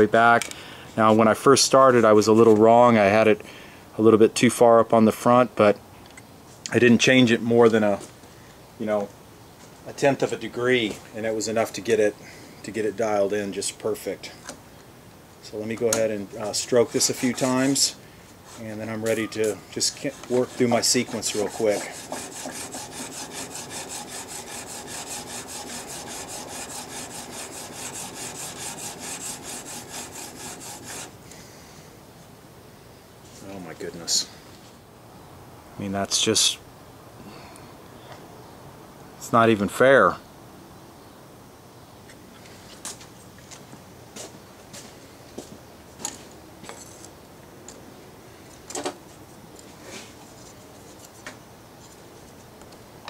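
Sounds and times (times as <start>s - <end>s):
blade rasping on sharpening plate: 20.2s - 31.1s.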